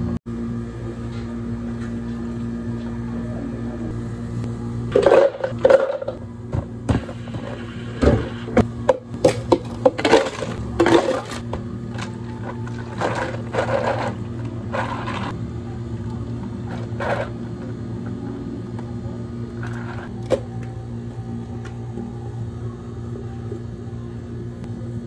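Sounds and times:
cafe equipment hum: 0.0 - 25.0
ice cubes clattering into cups: 9.5 - 11.4.

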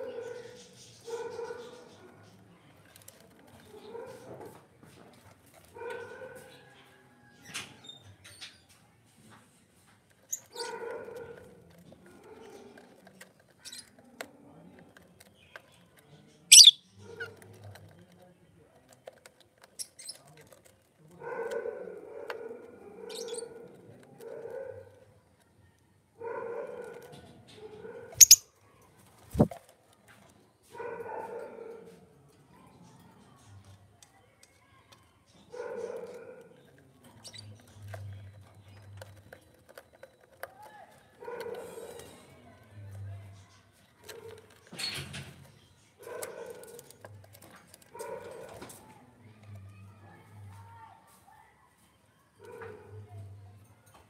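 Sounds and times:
dog barking: 0.0 - 2.0, 5.8 - 6.8, 10.5 - 11.5, 21.2 - 25.0, 26.2 - 28.4, 30.7 - 32.1, 35.5 - 36.6, 41.2 - 42.0, 46.0 - 46.9, 47.9 - 48.8
lovebirds chirping: 15.4 - 17.2, 27.9 - 28.5.

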